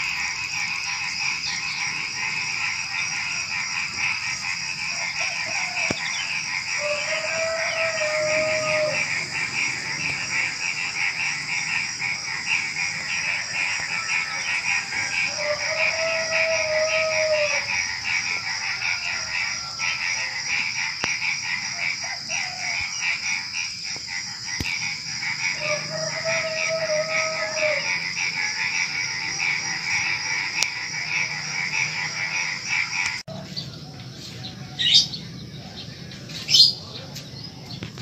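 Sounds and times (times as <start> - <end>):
crickets trilling: 0.0 - 38.0
frogs calling: 0.0 - 38.0
rooster crowing: 4.8 - 10.0, 12.8 - 20.6, 21.7 - 23.0, 25.4 - 32.7, 33.3 - 35.2.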